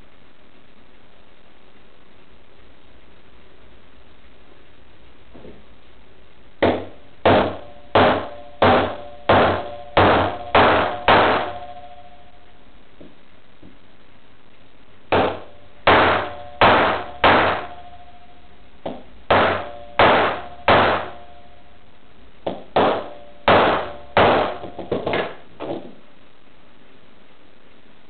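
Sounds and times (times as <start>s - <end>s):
hammer striking steel punch: 6.6s - 11.9s, 15.1s - 17.9s, 18.9s - 21.2s, 22.5s - 25.4s.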